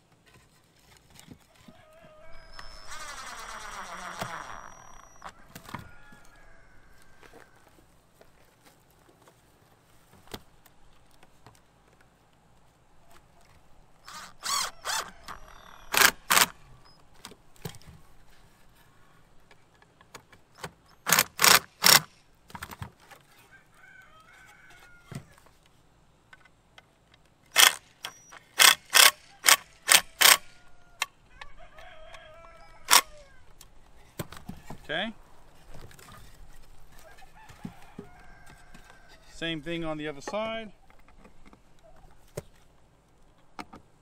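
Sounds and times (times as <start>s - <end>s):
impact driver driving screws: 2.4s - 5.3s, 14.0s - 16.7s, 20.5s - 22.2s, 27.5s - 30.6s, 32.9s - 33.2s.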